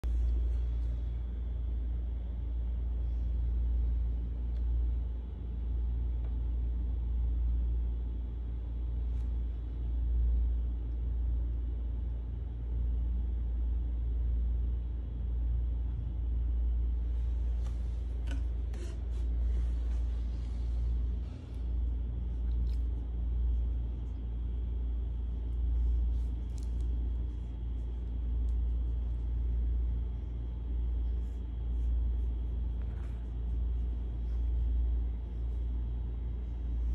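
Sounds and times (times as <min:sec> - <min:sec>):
scratchy rustles: 0:17.1 - 0:36.9.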